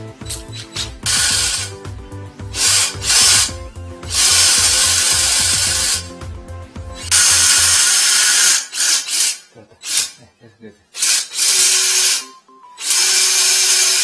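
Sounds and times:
music with low beat: 0.0 - 7.9, 12.2 - 13.5
cordless drill spinning drain cable: 0.3 - 1.7, 4.1 - 6.0, 7.1 - 10.0, 12.8 - 14.0.

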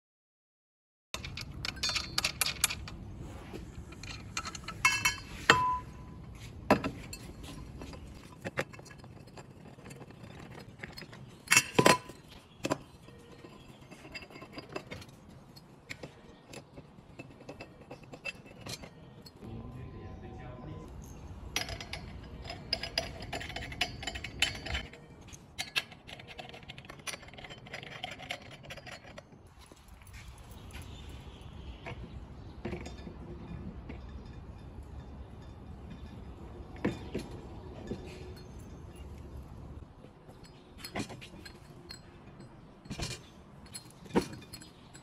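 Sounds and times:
metallic clicks and clinks: 1.2 - 3.0, 3.9 - 6.2, 21.0 - 45.0.

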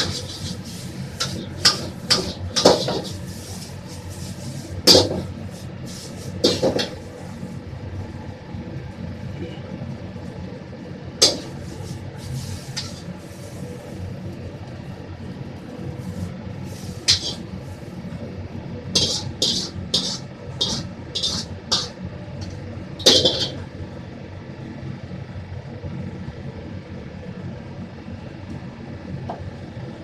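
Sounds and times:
ladle clattering against wok: 0.0 - 3.3, 4.8 - 5.3, 6.4 - 7.0, 17.1 - 17.5, 19.0 - 23.6
burner and hood rumble: 0.0 - 7.5, 15.2 - 24.1.

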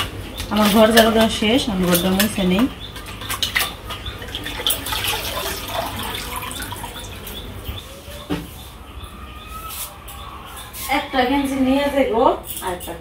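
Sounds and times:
water sloshing and dripping: 0.0 - 7.8.

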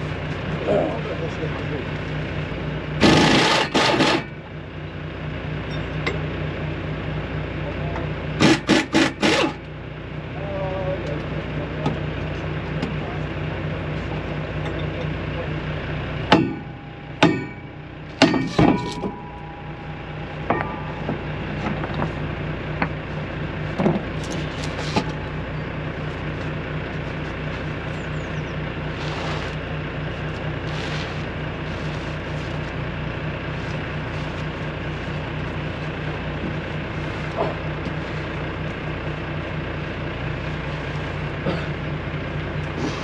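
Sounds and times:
diesel truck engine droning: 0.0 - 43.0
sharp metallic clanks: 16.3 - 23.0.

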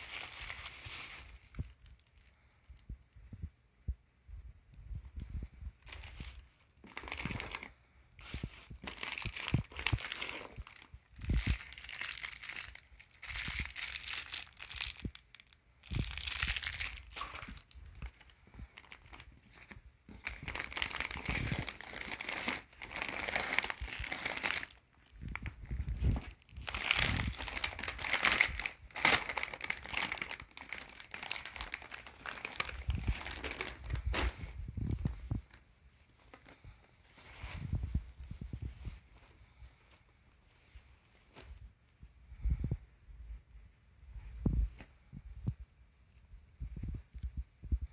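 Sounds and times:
plastic packaging crinkling: 0.0 - 2.8, 5.8 - 39.3.

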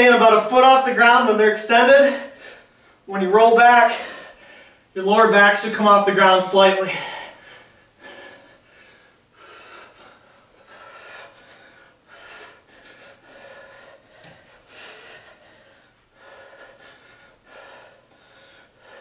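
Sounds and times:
man breathing hard: 3.8 - 5.0, 6.8 - 19.0.

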